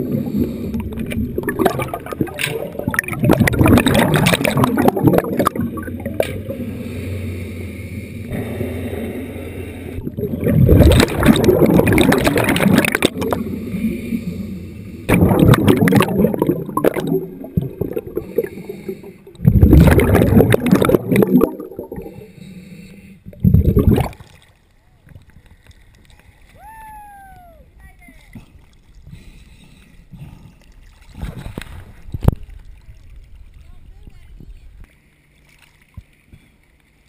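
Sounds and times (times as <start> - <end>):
water rushing and bubbling: 0.0 - 25.3.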